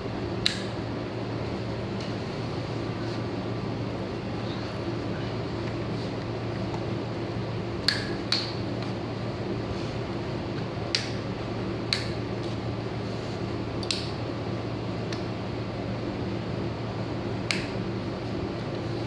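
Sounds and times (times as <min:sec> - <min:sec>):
steady fan hum: 0:00.0 - 0:19.0.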